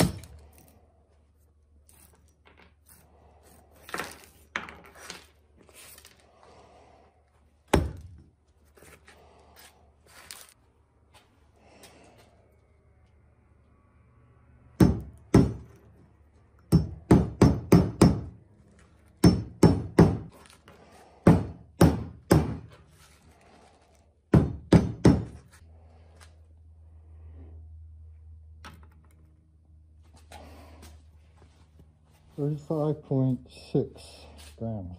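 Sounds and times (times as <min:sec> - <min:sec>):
hammer striking metal: 0:14.8 - 0:15.7, 0:16.7 - 0:18.4, 0:19.2 - 0:20.3, 0:21.3 - 0:22.6.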